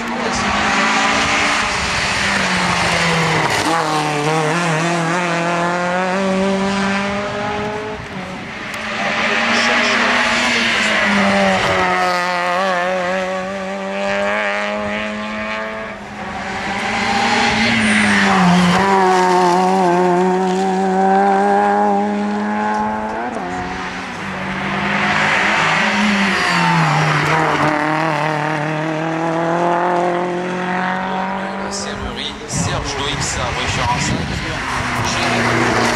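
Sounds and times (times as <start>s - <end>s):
rally car engines revving: 0.0s - 35.9s.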